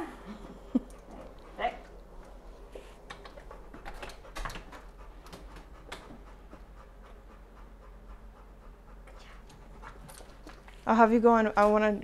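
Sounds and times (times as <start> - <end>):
dog panting: 0.8 - 11.0
leash and harness clicking: 3.1 - 6.2, 9.4 - 12.0.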